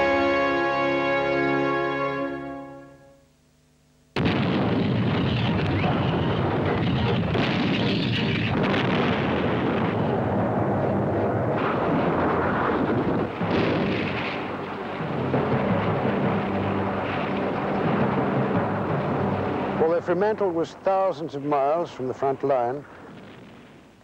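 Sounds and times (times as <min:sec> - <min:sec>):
sharp gunshot reports: 0:04.2 - 0:10.7
artillery fire and explosions: 0:04.2 - 0:20.8, 0:22.2 - 0:24.0.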